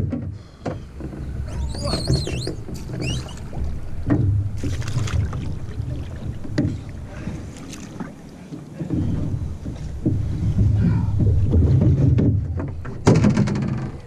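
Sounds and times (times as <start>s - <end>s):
water sloshing and splashing: 0.0s - 14.0s
wind rumbling on microphone: 8.8s - 14.0s.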